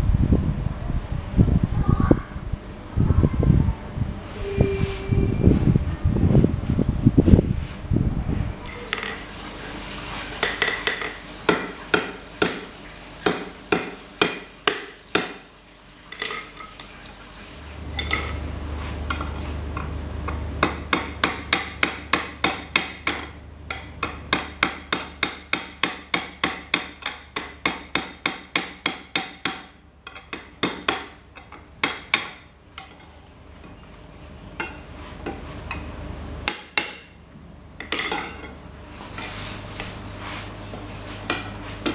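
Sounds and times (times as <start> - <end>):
low hum: 0.0 - 9.1
hammer striking metal on anvil: 13.2 - 15.4, 20.6 - 32.9, 35.7 - 37.2.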